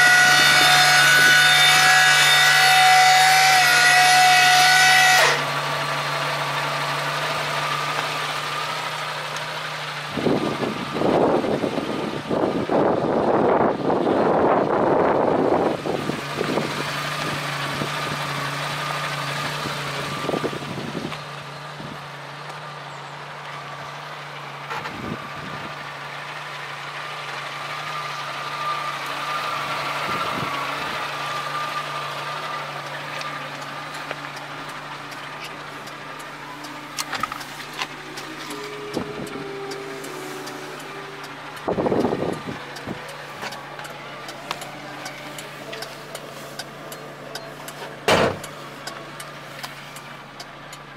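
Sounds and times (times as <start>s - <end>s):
truck engine idling: 0.0s - 50.9s
brief thump: 48.1s - 48.4s.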